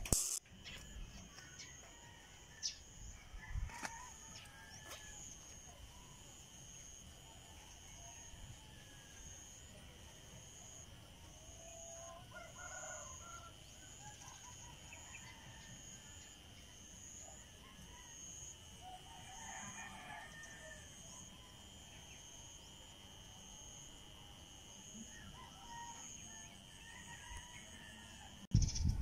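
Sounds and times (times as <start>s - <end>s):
pulsing high-pitched tone: 0.0s - 1.2s.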